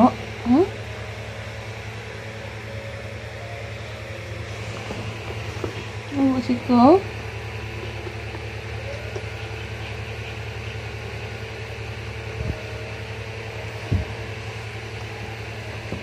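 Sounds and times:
low motor hum: 0:00.0 - 0:16.0
low thumps: 0:13.9 - 0:14.2.

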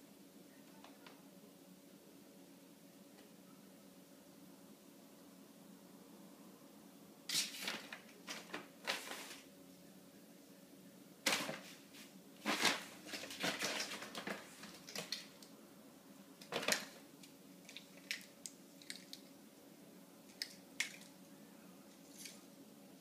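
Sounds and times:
plastic wrapper crinkling: 0:12.4 - 0:15.3.

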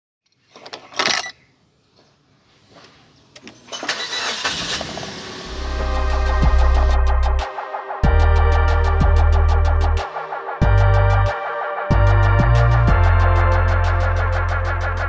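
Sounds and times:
car engine cranking and starting: 0:03.5 - 0:06.9
electronic music with heavy bass: 0:05.5 - 0:15.0.

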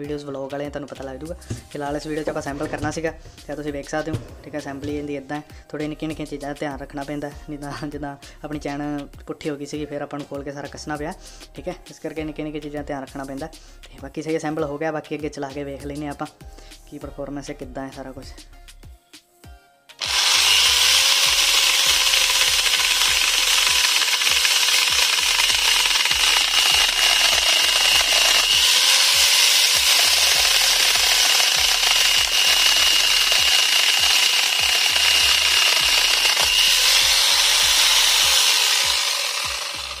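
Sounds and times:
angle grinder chainsaw running: 0:01.4 - 0:05.3, 0:20.0 - 0:40.0.

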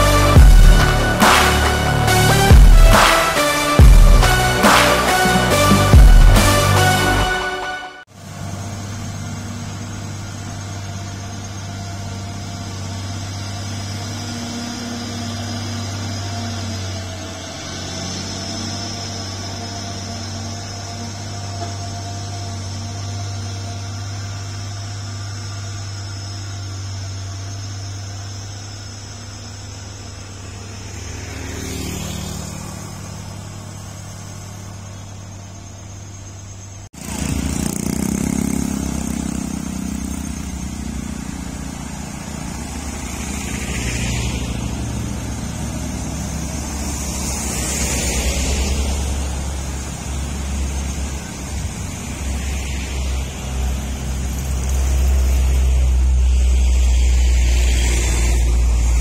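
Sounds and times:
diesel truck engines idling: 0:00.0 - 0:59.0
road traffic passing: 0:00.0 - 0:59.0
motorbike passing: 0:29.3 - 0:35.8, 0:37.0 - 0:59.0.

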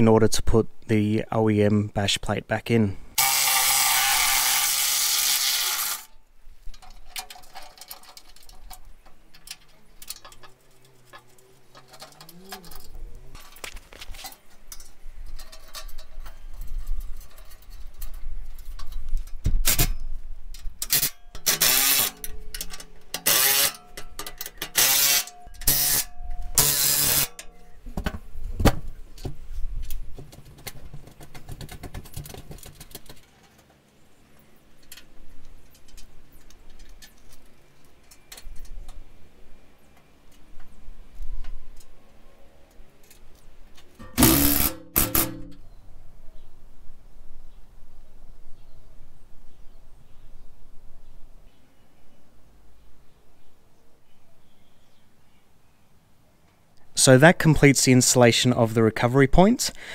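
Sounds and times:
tool noise bursts and clatter: 0:03.2 - 0:06.1, 0:20.8 - 0:27.4, 0:44.0 - 0:45.6
metal plate knocking and scraping: 0:44.0 - 0:45.6.

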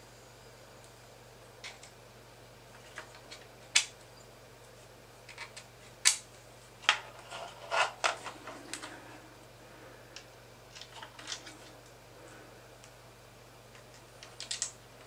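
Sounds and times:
plastic parts clicking and knocking: 0:13.8 - 0:14.8.

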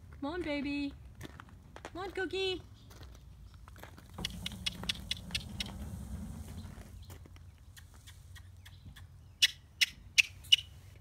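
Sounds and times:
low rustle: 0:04.2 - 0:07.3.

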